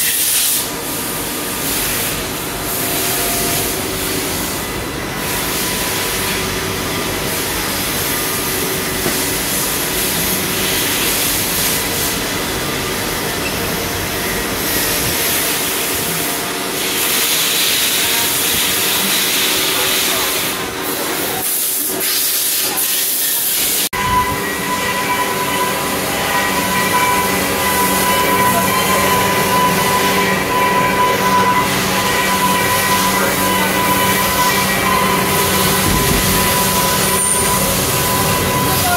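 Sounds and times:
machine shop hiss: 0.0 - 38.9
steady machine whine: 0.6 - 21.4, 23.7 - 38.9.

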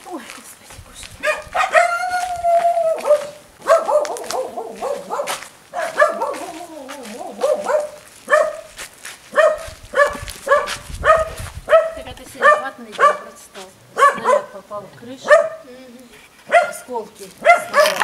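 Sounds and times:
dog barking: 1.2 - 2.2, 2.9 - 8.7, 9.3 - 14.6, 15.2 - 15.7, 16.5 - 18.0.

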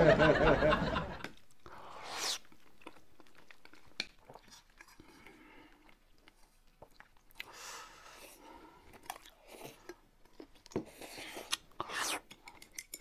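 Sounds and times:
chewing: 2.4 - 13.0
spoon and chopsticks clicking on dishes: 12.4 - 13.0.

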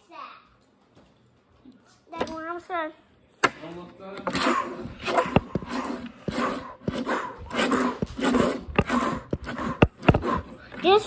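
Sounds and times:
child making engine noises: 10.8 - 11.0.

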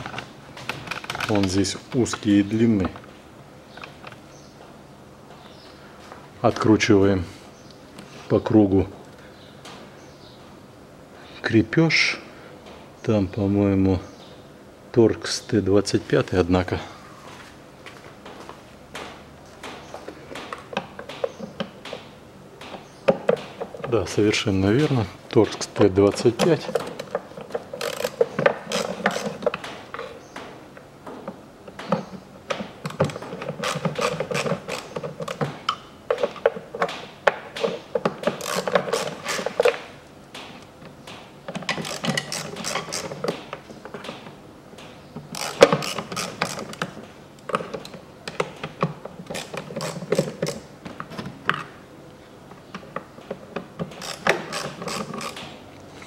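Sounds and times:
ratcheting driver clicking: 26.1 - 30.1, 32.8 - 36.9, 37.6 - 39.8, 41.5 - 43.5, 45.2 - 48.6, 49.2 - 50.7, 53.8 - 55.6.

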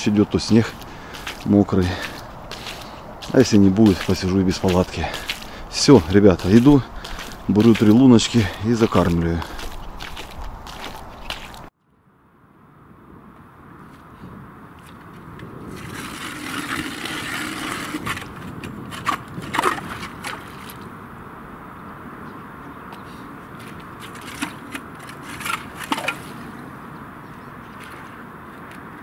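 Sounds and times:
ice auger grinding through ice: 15.7 - 20.0, 24.0 - 26.4
auger scrapes and knocks: 24.0 - 26.4.

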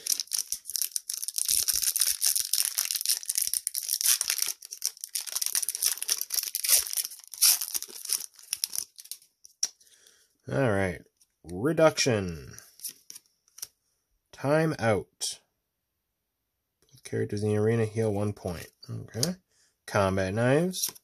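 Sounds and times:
wrapper tearing and crinkling: 0.0 - 9.3.

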